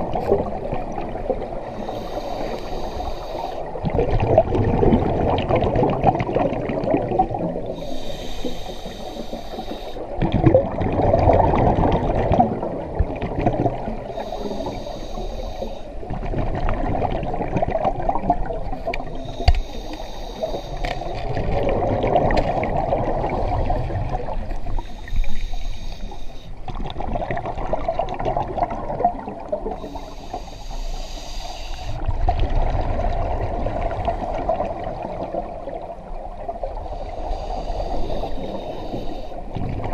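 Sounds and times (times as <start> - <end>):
exhaled air bubbling: 0.0 - 39.9
regulator inhale hiss: 1.6 - 3.8, 7.6 - 10.2, 14.0 - 16.0, 18.7 - 21.3, 24.6 - 26.6, 29.7 - 32.1, 36.8 - 39.6.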